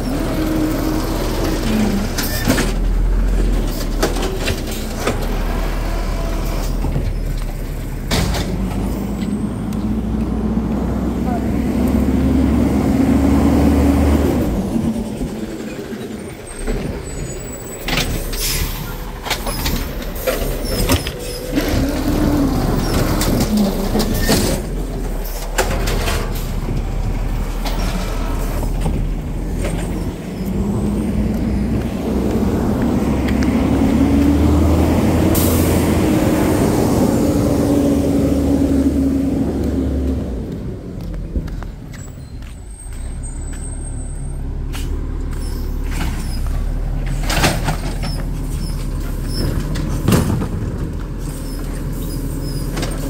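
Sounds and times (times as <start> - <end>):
garbage truck engine revving: 0.0 - 41.1.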